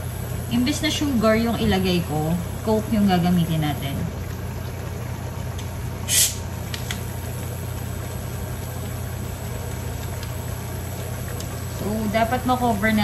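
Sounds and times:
steady low hum: 0.0s - 13.0s
bottle opening hiss: 6.1s - 6.5s.

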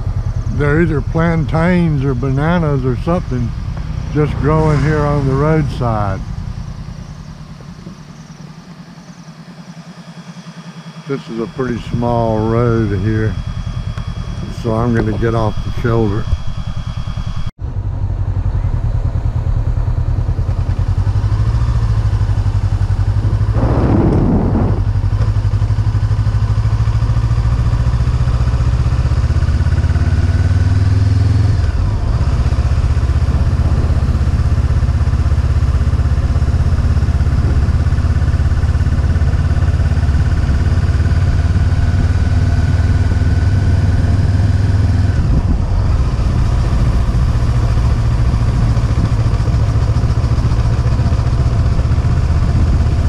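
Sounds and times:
motorcycle engine running: 0.0s - 53.0s
noisy whoosh: 2.8s - 7.6s, 22.9s - 25.4s.

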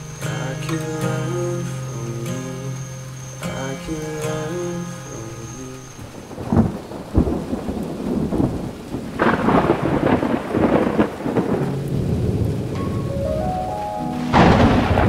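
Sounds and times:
rolling thunder rumble: 6.0s - 15.0s
thunder cracks: 6.1s - 13.2s, 14.1s - 15.0s.

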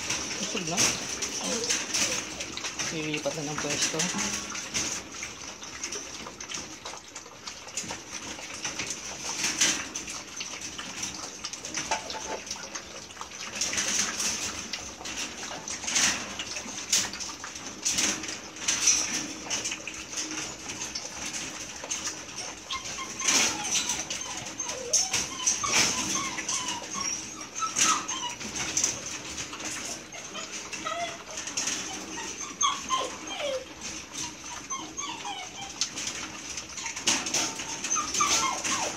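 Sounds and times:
puppy whimpers: 0.0s - 5.0s, 17.9s - 38.9s
puppies lapping milk: 0.0s - 38.9s.

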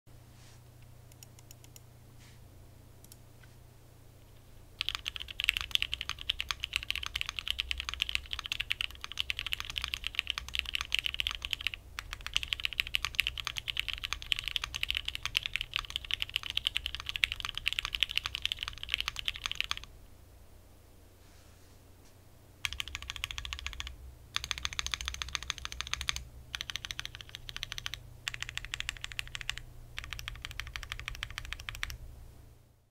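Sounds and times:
fast mechanical keyboard typing: 4.8s - 19.9s, 22.6s - 32.0s.

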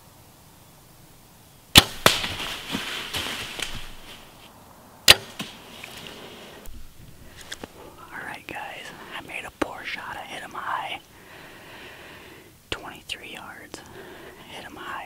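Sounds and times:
rustling through dry leaves: 1.7s - 9.0s
bow string crack: 1.8s - 4.5s.

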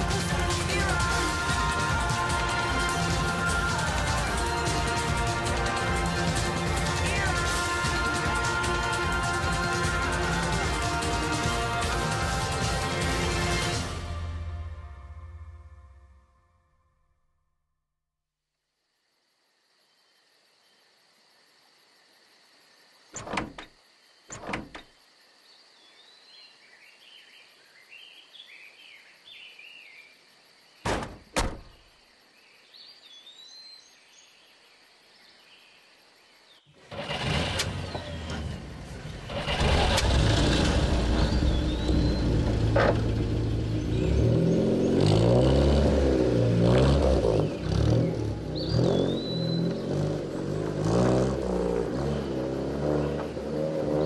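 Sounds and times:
car doors thudding shut: 23.2s - 23.7s, 24.3s - 24.9s, 30.8s - 31.8s
car engine starting and revving: 23.2s - 23.7s, 24.3s - 24.8s, 36.8s - 54.0s
birds chirping: 37.8s - 54.0s.

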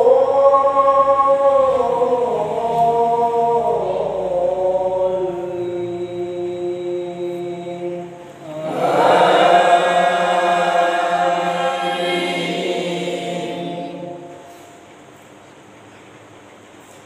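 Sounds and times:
person chanting recitation: 0.0s - 14.7s.

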